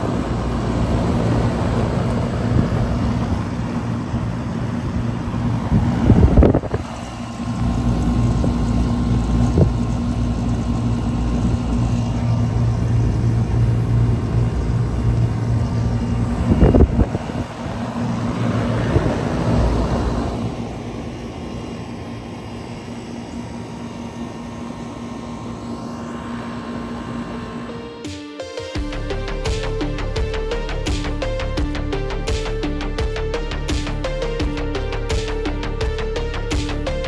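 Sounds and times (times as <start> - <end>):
wind gust on microphone: 0.0 - 9.9, 14.0 - 20.8
compressor hum: 0.0 - 37.0
condenser fan rushing: 0.0 - 37.0.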